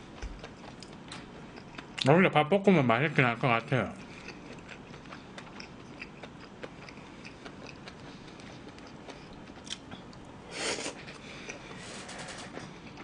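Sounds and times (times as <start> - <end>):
person chewing meat: 0.0 - 2.1, 3.9 - 11.8, 12.6 - 13.0.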